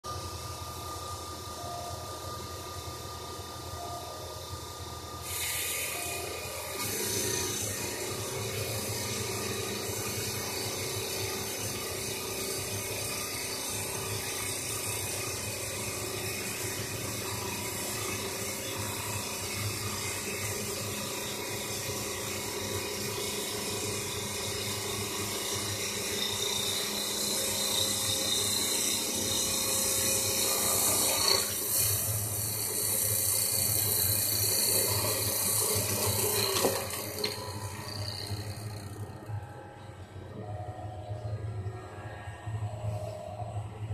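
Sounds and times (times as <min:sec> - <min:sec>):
lathe machine running: 0:00.0 - 0:43.9
lathe cutter shaving wood: 0:05.2 - 0:39.4.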